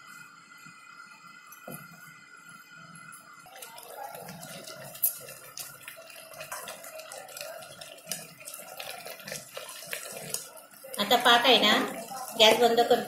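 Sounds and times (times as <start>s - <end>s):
syrup sloshing and squelching: 3.5s - 12.4s.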